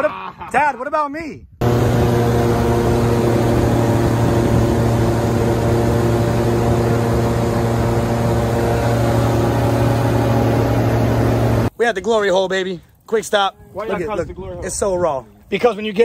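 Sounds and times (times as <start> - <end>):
airboat engine and propeller drone: 1.6 - 11.7.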